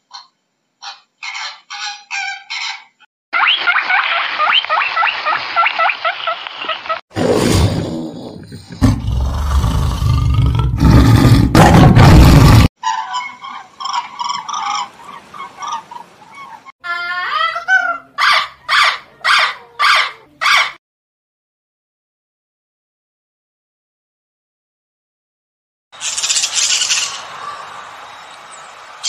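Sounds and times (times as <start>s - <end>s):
evenly spaced animal calls: 0.0s - 7.0s, 12.8s - 20.8s.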